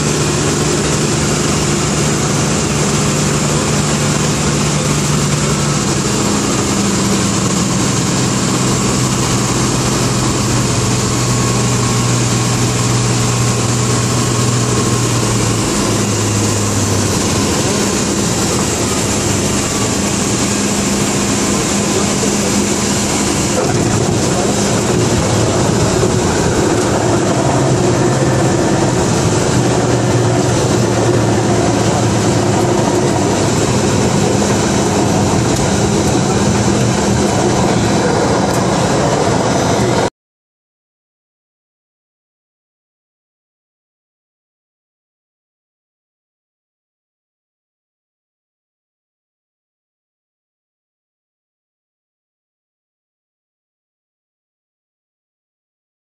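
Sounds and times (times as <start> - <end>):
propeller plane engine drone: 0.0 - 40.1.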